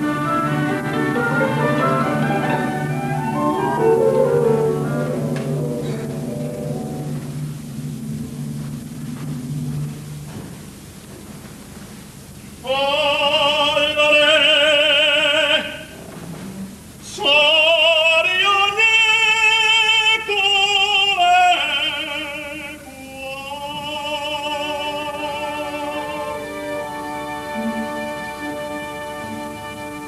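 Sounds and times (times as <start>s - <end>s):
orchestra playing: 0.0s - 10.2s, 24.8s - 30.0s
male opera singer: 12.6s - 16.0s, 17.0s - 30.0s.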